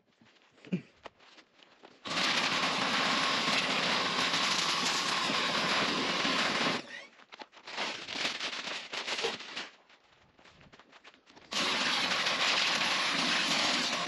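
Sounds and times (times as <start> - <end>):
pressure washer jetting water: 2.1 - 6.8, 11.5 - 14.0.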